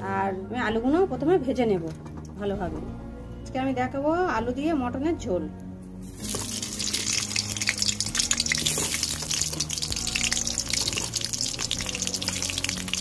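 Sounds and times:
potatoes sizzling in oil: 0:06.2 - 0:13.0.

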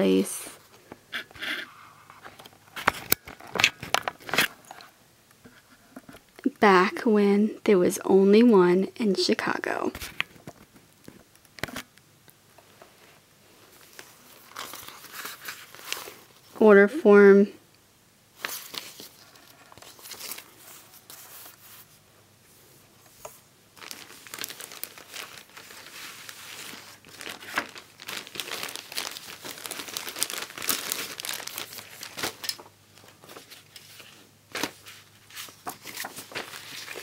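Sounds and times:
paper and plastic rustling: 0:02.0 - 0:04.9, 0:12.6 - 0:16.6, 0:18.4 - 0:22.0, 0:23.0 - 0:37.0.

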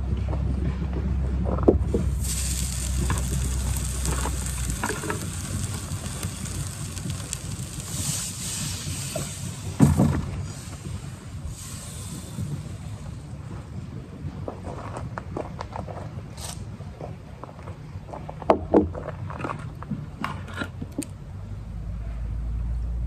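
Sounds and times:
frying pan sizzling: 0:02.0 - 0:13.1.

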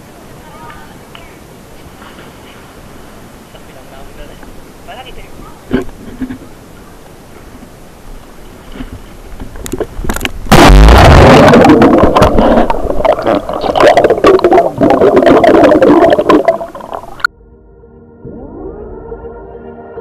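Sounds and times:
small underwater clicks and pops: 0:08.7 - 0:10.4
underwater rush and bubbling: 0:09.5 - 0:17.3.

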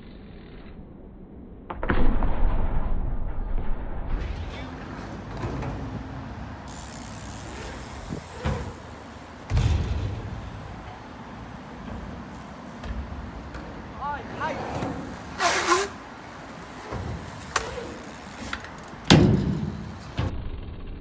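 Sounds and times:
bike landing thump: 0:04.2 - 0:14.0, 0:16.6 - 0:20.4
bike tyres rolling: 0:04.3 - 0:20.3.

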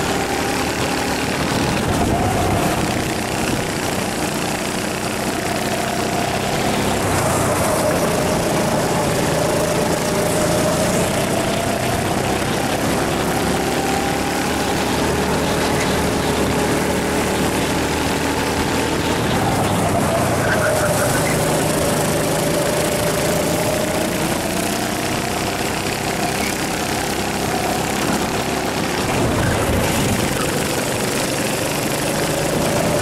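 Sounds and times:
go-kart engine running hard: 0:00.0 - 0:33.0
steady rush of noise: 0:00.0 - 0:33.0.

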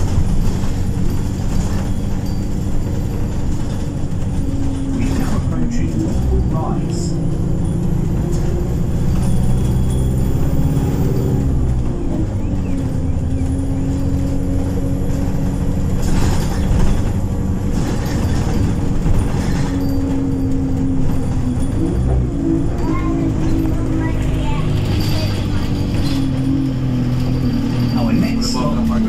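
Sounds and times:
bus engine running: 0:00.0 - 0:29.0
passing traffic rushes: 0:00.0 - 0:29.0.

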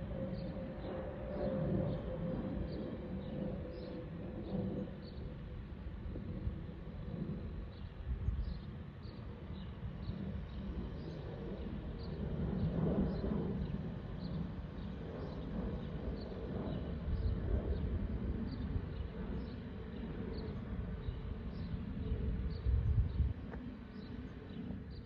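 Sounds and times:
faint steady jet whistle: 0:00.0 - 0:05.4
jet rumble overhead: 0:00.0 - 0:25.0.

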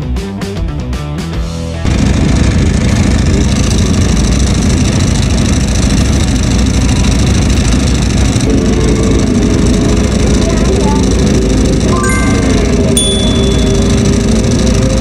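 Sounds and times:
motorcycle engine running: 0:01.8 - 0:15.0
intro music: 0:11.9 - 0:14.8.

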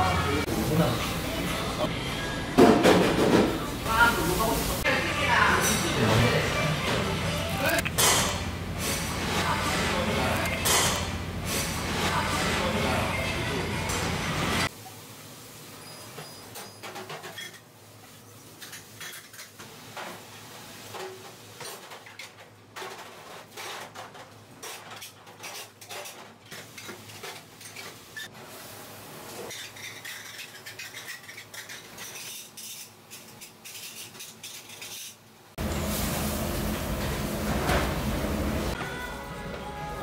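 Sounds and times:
metal kitchenware clinking: 0:05.5 - 0:06.3.

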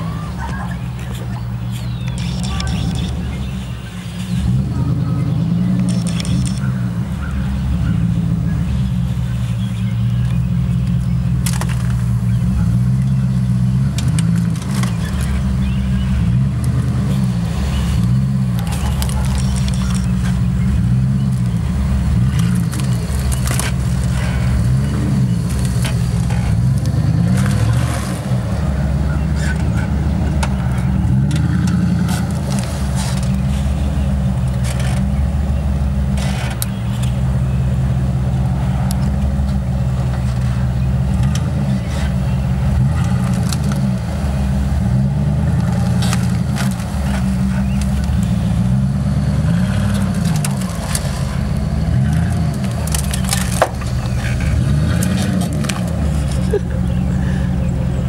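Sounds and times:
engine revving at low revs: 0:00.0 - 0:58.0
sharp knocks and cracks: 0:49.8 - 0:56.4.

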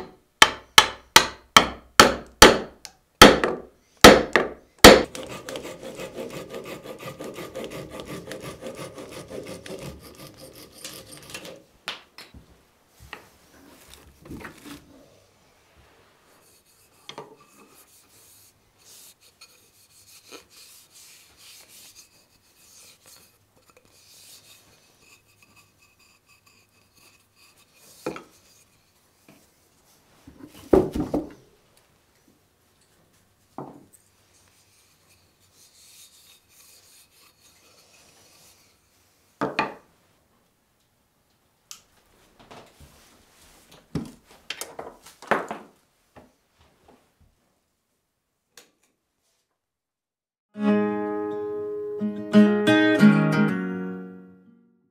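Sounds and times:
hand rubbing wooden handle: 0:13.1 - 0:30.7, 0:34.0 - 0:39.3.

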